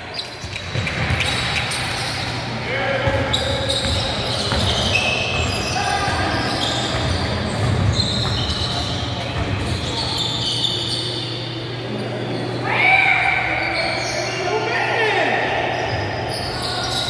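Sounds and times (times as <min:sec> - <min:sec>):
voices in background: 0:00.0 - 0:17.0
basketballs bouncing on hardwood: 0:03.0 - 0:09.9
high-pitched shoe squeaks: 0:03.2 - 0:11.6.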